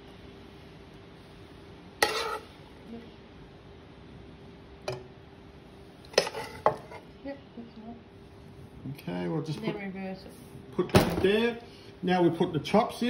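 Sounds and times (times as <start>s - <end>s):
faint steady hum: 0.0s - 13.0s
spoon scraping a frying pan: 2.0s - 2.6s, 6.0s - 7.1s.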